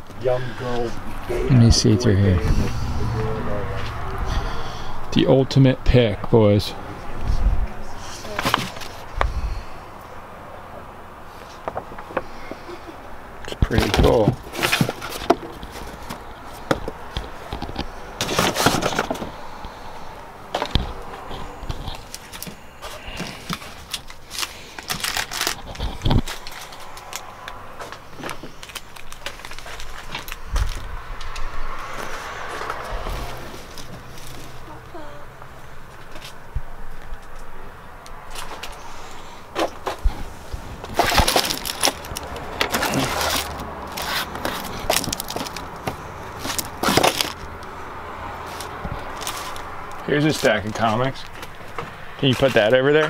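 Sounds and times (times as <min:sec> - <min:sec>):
cards and paper rustling: 0:13.6 - 0:19.7, 0:20.5 - 0:34.6, 0:39.6 - 0:47.5, 0:48.4 - 0:52.8.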